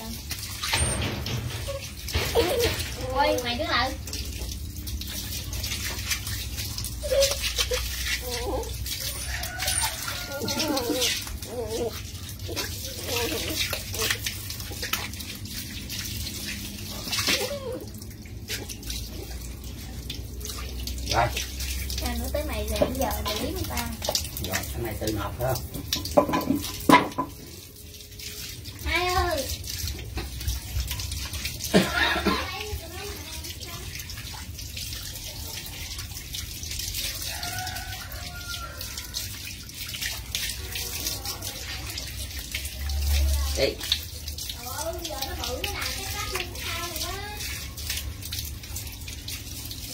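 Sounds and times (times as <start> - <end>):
water running and splashing: 0.0 - 49.9
dog being scrubbed: 5.1 - 25.9.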